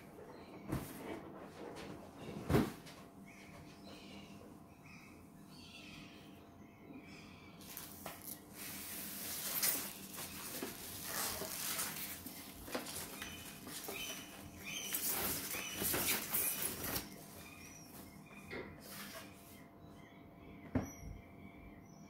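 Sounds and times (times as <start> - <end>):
packaging crinkling and rustling: 7.6 - 17.2.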